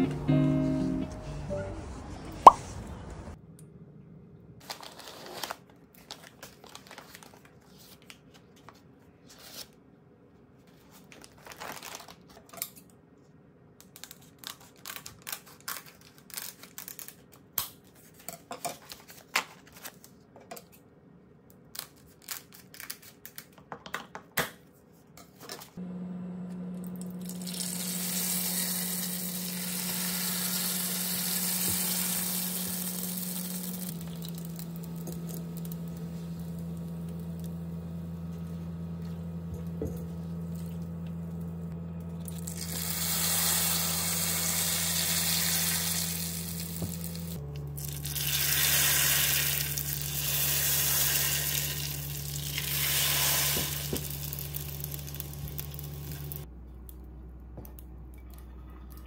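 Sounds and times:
low steady hum: 25.5s - 59.0s
rice paper sizzling in hot oil: 27.2s - 38.0s, 42.3s - 56.4s.

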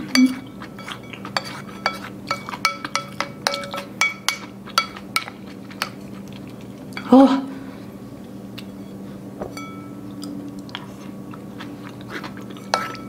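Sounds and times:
utensils clinking on ceramic bowl: 0.1s - 6.2s, 12.4s - 13.0s.

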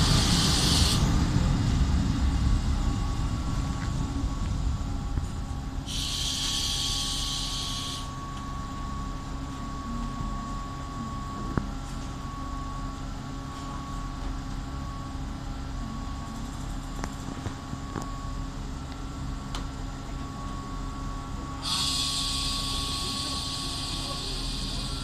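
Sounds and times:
diesel railcars idling: 0.0s - 11.5s, 18.6s - 25.0s
faint steady whine: 0.0s - 25.0s
loud steady hiss: 5.9s - 8.0s.

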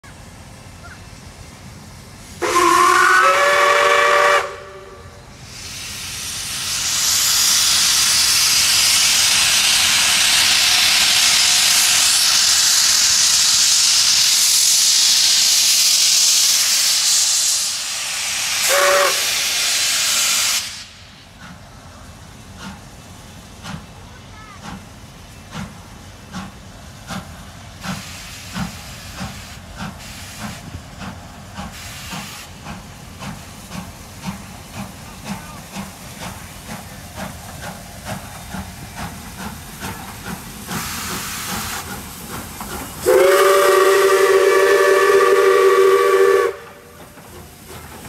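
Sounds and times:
steam hissing: 0.2s - 48.0s
steam locomotive whistle: 2.4s - 5.8s, 18.6s - 20.9s, 43.0s - 47.0s.

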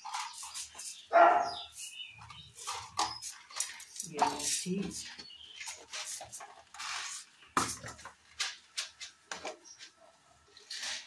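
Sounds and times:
kitchen utensils clinking: 0.0s - 5.2s.

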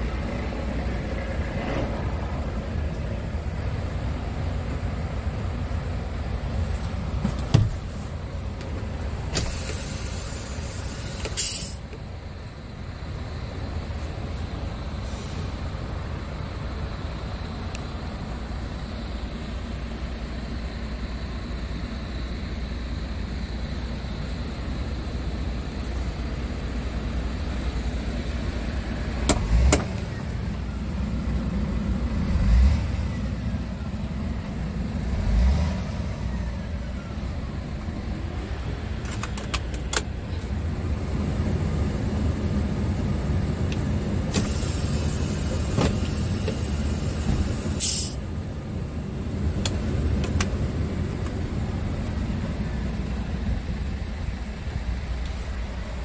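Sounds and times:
diesel engine idling: 0.0s - 56.0s
brief hiss: 44.3s - 48.2s.

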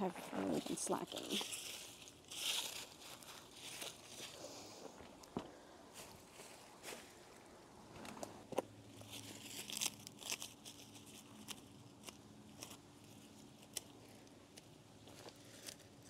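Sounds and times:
dry leaves crackling and tearing: 0.0s - 4.5s, 8.9s - 16.0s.

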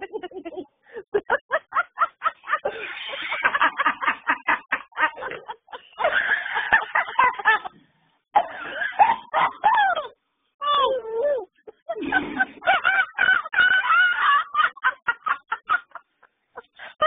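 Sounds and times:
woman cackling laughter: 0.0s - 7.8s, 11.4s - 17.0s.

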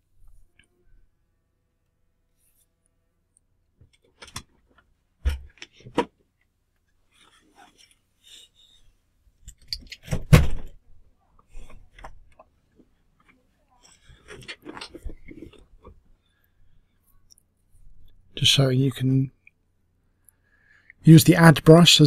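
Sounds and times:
thump: 10.1s - 10.7s.

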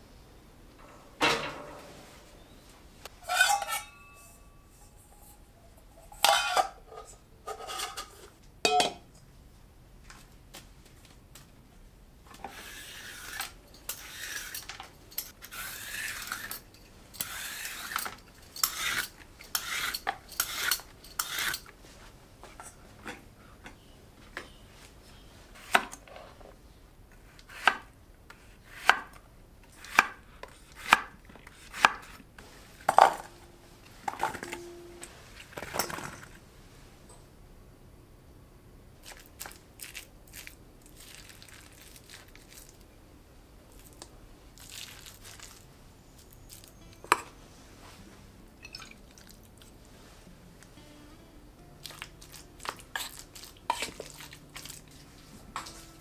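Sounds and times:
cookware clanking: 0.8s - 2.1s, 3.2s - 5.4s, 6.0s - 9.0s
peeler scraping skin off vegetable: 15.4s - 16.6s, 17.2s - 21.6s.

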